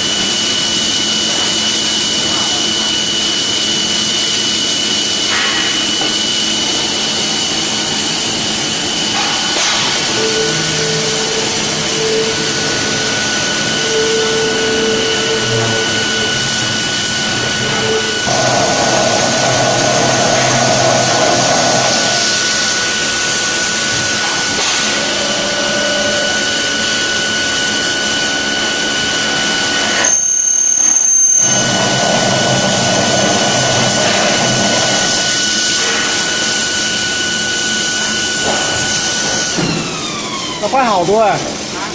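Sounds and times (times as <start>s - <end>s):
drilling machine whine: 0.0s - 41.8s
high whistle: 10.1s - 18.3s, 29.6s - 32.0s.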